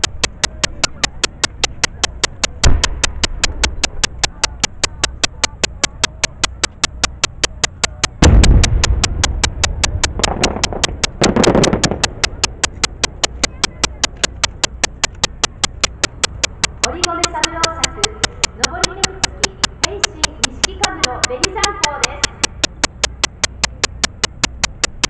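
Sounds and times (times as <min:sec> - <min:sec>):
rapid ticking: 0:00.0 - 0:25.0
firework crackling: 0:08.2 - 0:14.7.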